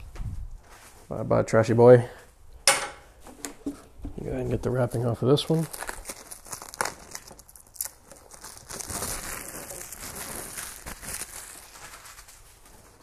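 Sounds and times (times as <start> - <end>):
plastic wrapping crinkling: 4.8 - 13.0.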